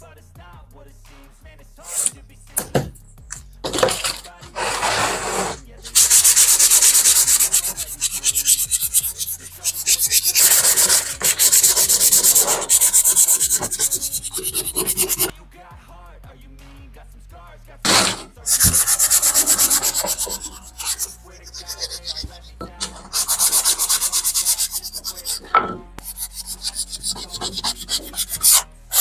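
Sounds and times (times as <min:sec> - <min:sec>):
sandpaper rubbing on wood: 0:01.8 - 0:15.3, 0:17.9 - 0:29.0.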